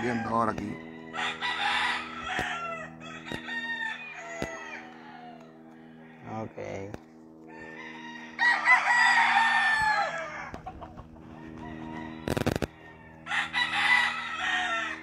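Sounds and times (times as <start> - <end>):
roosters crowing: 0.0 - 15.0
steady low hum: 0.0 - 15.0.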